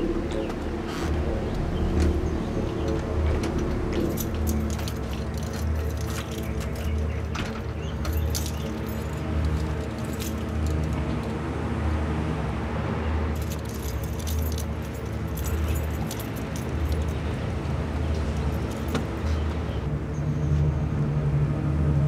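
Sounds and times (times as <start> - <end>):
keys jangling: 2.8 - 11.0, 13.4 - 17.3, 18.1 - 19.4.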